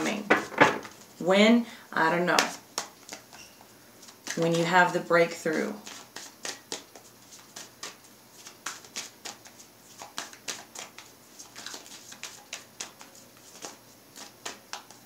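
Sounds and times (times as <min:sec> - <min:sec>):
cards being shuffled: 0:02.4 - 0:03.4, 0:05.3 - 0:15.0.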